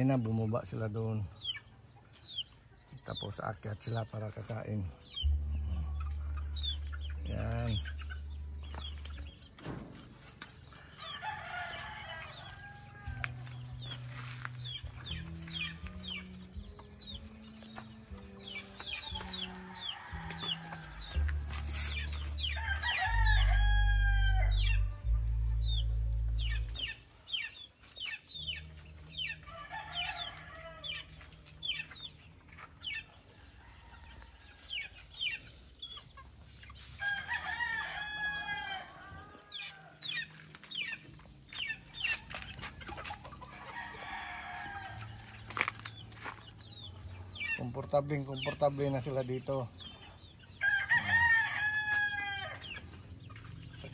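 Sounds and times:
background music: 0:00.0 - 0:53.9
chicks peeping and clucking: 0:00.0 - 0:53.9
roosters crowing: 0:05.0 - 0:16.6, 0:18.0 - 0:28.3, 0:29.1 - 0:31.7, 0:32.8 - 0:35.8, 0:36.4 - 0:47.5, 0:50.1 - 0:53.3.

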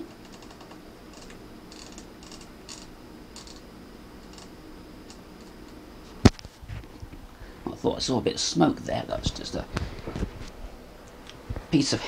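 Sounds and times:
rotary switch clicking: 0:00.0 - 0:04.5.

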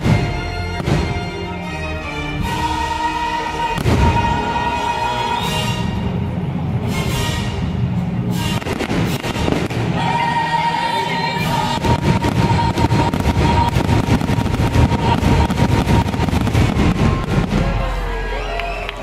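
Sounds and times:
music playing loudly: 0:00.0 - 0:18.6
fireworks bursting and crackling: 0:02.6 - 0:06.9, 0:08.3 - 0:19.0.

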